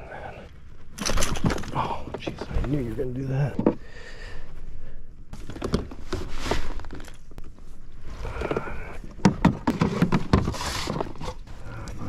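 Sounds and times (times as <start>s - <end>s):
knocks and thumps on a kayak: 9.1s - 11.2s.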